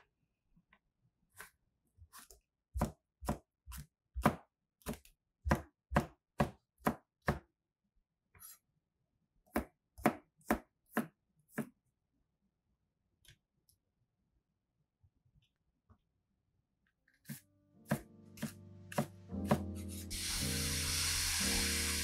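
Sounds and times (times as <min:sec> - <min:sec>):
knife chopping on cutting board: 0:02.1 - 0:07.4, 0:09.5 - 0:11.8, 0:17.2 - 0:20.0.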